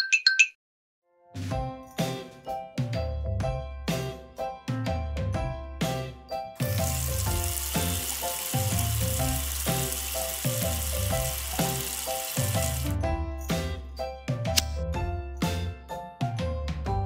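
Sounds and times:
background music: 1.1 - 17.0
food sizzling in hot oil: 6.6 - 13.0.

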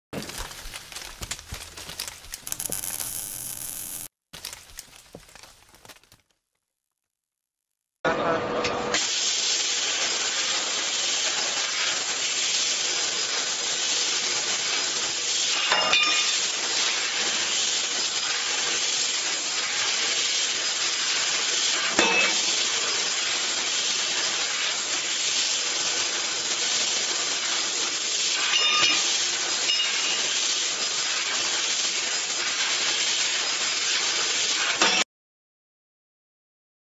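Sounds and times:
laser cutter gas jet hiss: 2.4 - 4.1, 9.0 - 35.0
short sharp machine sounds: 2.5 - 4.1.

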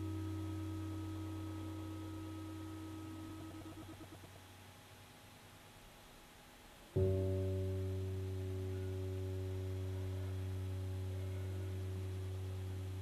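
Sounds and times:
low musical drone: 7.0 - 13.0.

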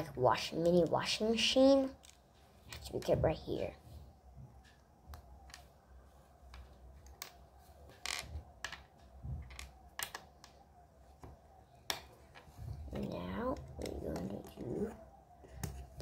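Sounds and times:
plastic pieces clicking: 8.1 - 10.6.

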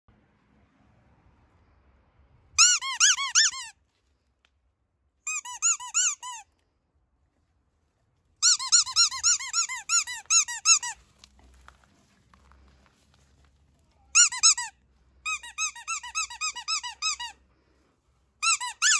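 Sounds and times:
rubber squeaky toy squeaks: 2.6 - 3.8, 5.2 - 6.6, 8.4 - 11.7, 14.1 - 17.4, 18.4 - 18.9.

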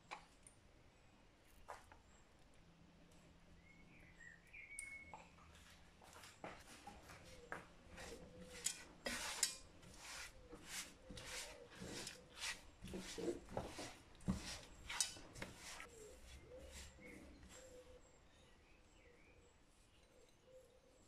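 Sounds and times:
spatula scraping a pan: 7.9 - 17.7.

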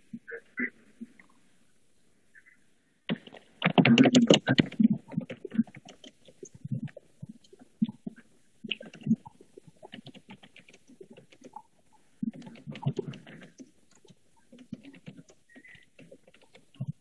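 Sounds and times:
typing on computer keyboard: 8.7 - 11.6, 12.3 - 17.0.

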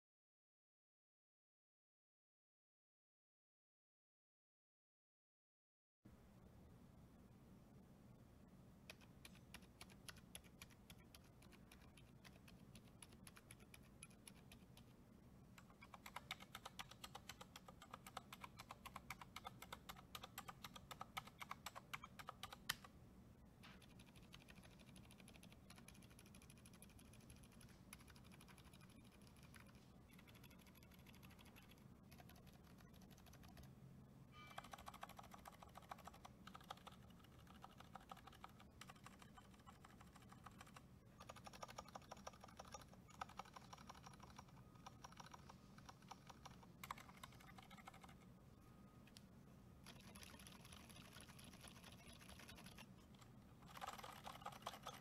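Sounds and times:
typing on mechanical keyboard: 8.9 - 14.9, 15.6 - 22.9, 23.8 - 33.7, 34.4 - 48.2, 49.8 - 55.0.

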